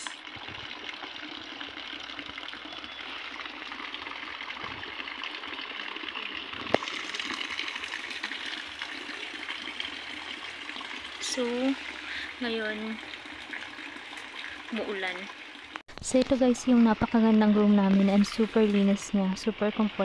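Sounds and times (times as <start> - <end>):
rain on wooden deck: 3.6 - 15.8.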